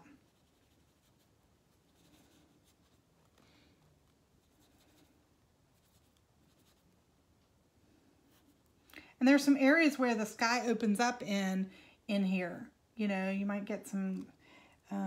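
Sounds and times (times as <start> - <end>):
paintbrush strokes on canvas: 0.0 - 7.1, 8.2 - 8.7.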